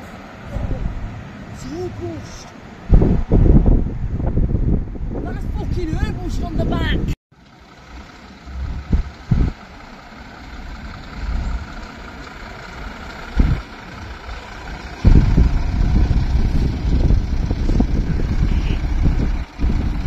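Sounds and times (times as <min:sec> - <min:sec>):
lorry diesel engine passing: 0:07.4 - 0:20.0
short low thumps: 0:08.6 - 0:09.6.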